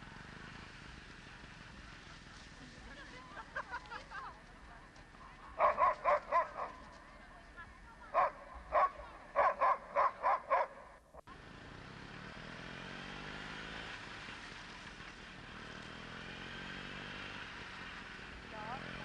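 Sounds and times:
dog yipping: 5.6s - 6.8s.

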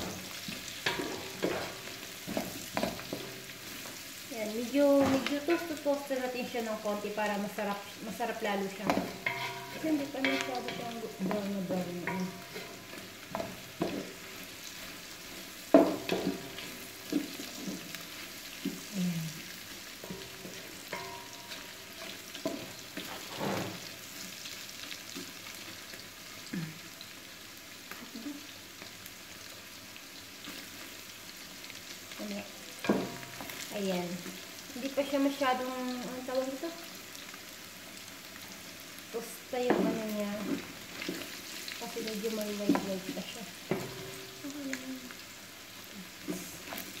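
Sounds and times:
wooden spatula scraping a pot: 0.0s - 4.0s, 8.7s - 24.0s
food sizzling in a pot: 0.0s - 47.0s.

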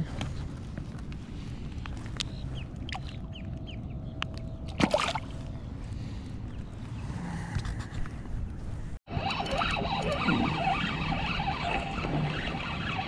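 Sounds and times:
fish splashing into water: 4.8s - 5.3s.

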